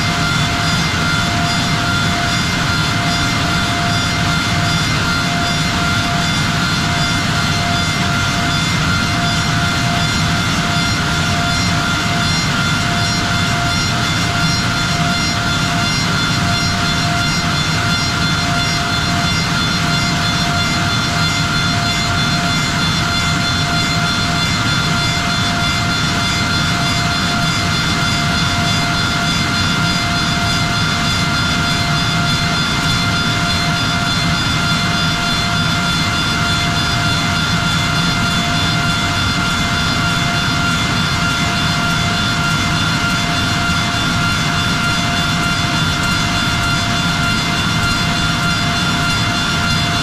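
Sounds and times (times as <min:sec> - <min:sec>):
spindle motors whining: 0:00.0 - 0:50.0.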